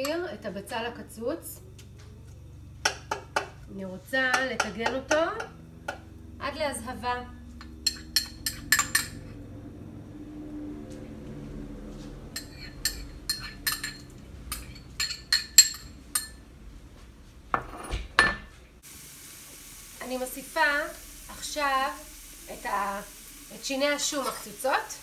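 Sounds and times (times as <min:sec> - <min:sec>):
spoon clinking against a bowl: 0:07.6 - 0:09.3, 0:12.4 - 0:16.4.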